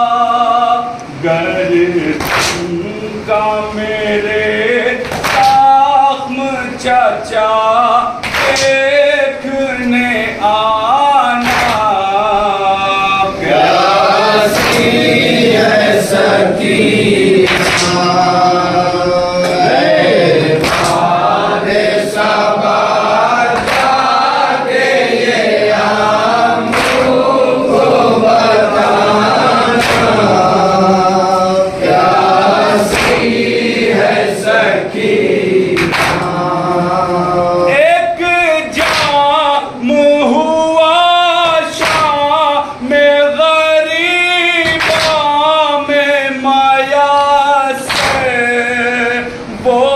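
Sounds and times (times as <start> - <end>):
voices chanting in chorus: 0.0 - 49.9
chest-beating slaps: 2.2 - 2.7, 5.0 - 5.7, 8.2 - 8.8, 11.4 - 11.9, 14.5 - 15.1, 17.4 - 18.1, 20.5 - 21.2, 23.5 - 24.9, 26.6 - 27.9, 29.7 - 30.4, 32.6 - 33.5, 35.8 - 36.4, 38.8 - 39.3, 41.8 - 42.2, 44.6 - 45.3, 47.9 - 48.4.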